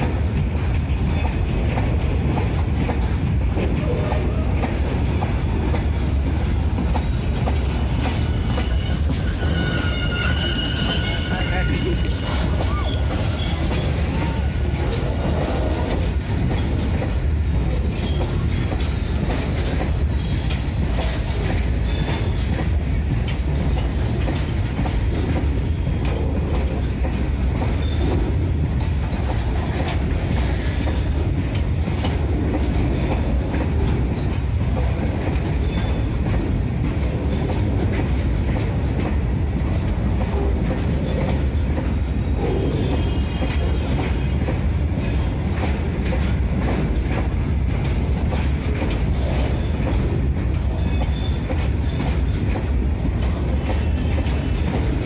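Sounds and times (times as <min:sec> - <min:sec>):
freight train rumbling past: 0:00.0 - 0:55.0
wheels clacking over rail joints: 0:00.0 - 0:55.0
high wheel squeal: 0:08.2 - 0:14.4.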